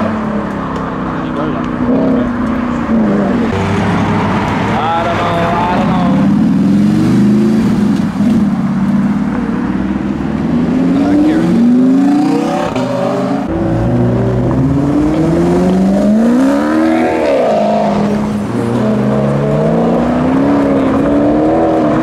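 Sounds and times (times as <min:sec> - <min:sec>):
sports car engines accelerating: 0:00.0 - 0:22.0.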